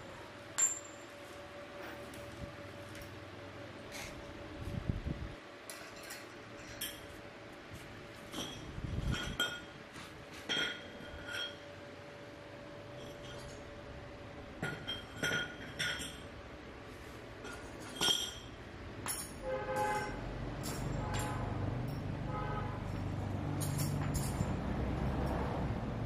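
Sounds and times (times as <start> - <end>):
sharp ringing clinks: 0.6 - 1.2, 23.6 - 24.6.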